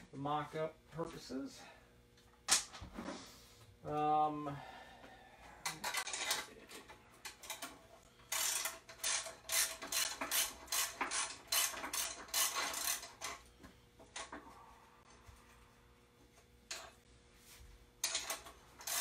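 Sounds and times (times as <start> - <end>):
ratchet wrench clicking: 8.3 - 13.4, 18.0 - 19.0.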